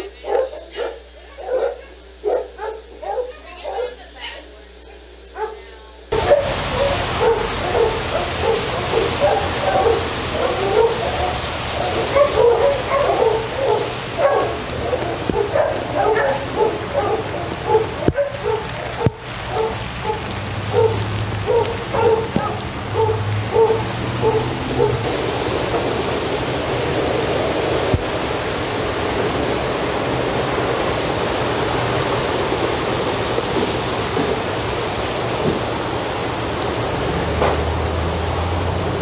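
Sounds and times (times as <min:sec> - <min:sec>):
rain falling: 0:00.0 - 0:39.0
dog barking: 0:00.2 - 0:04.0, 0:05.3 - 0:25.1.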